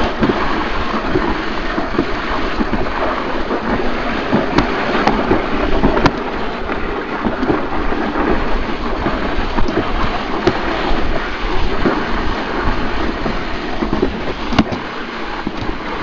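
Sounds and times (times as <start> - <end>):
sled scraping on concrete track: 0.0 - 16.0.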